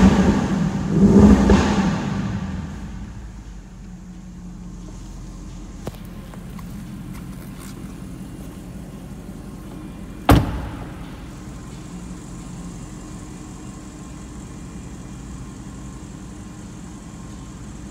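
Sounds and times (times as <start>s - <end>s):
car engine idling: 0.0s - 17.9s
car door slamming: 10.2s - 11.5s.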